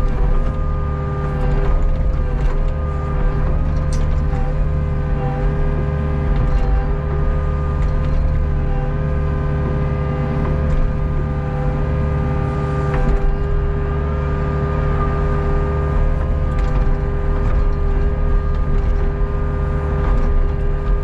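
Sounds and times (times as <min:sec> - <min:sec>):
excavator engine and hydraulics: 0:00.0 - 0:21.0.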